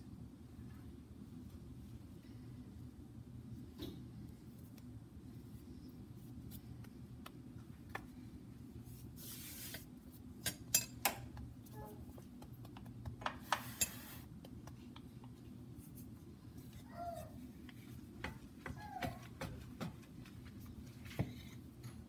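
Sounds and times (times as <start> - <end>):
steady low hum: 0.0 - 22.0
hands rubbing dough: 4.2 - 10.4, 11.4 - 21.8.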